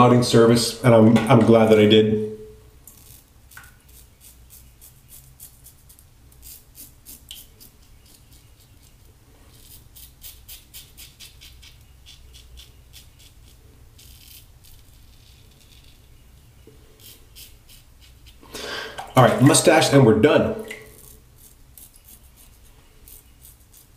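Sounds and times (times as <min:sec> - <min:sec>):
razor scraping stubble: 0:02.8 - 0:18.5, 0:20.9 - 0:23.9.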